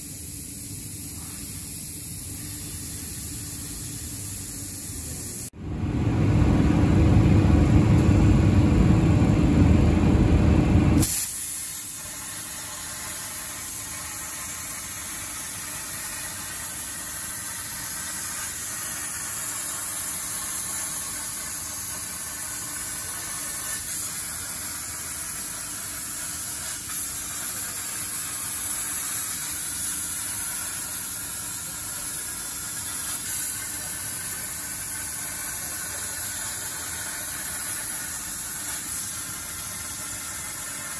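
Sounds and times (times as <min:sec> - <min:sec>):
plasma torch cutting arc hiss: 0:00.0 - 0:05.5, 0:11.0 - 0:40.9
low rumble: 0:05.6 - 0:11.0.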